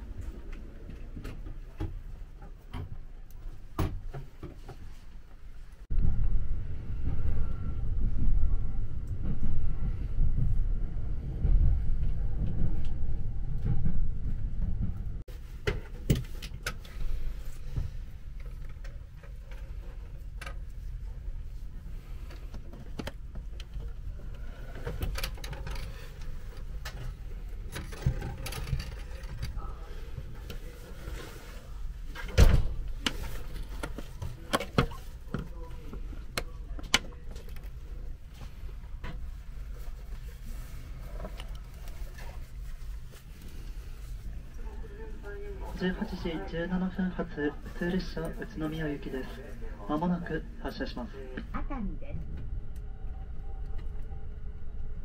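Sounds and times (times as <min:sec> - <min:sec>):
train running rumble: 0:06.0 - 0:15.4.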